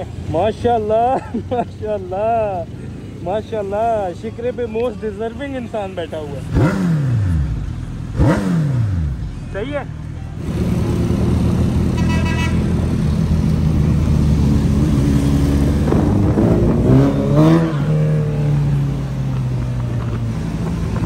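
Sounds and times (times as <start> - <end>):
motorcycle engines droning: 0.0 - 21.0
engine revving: 6.4 - 9.2, 10.4 - 19.0
vehicle horn toot: 11.9 - 12.8.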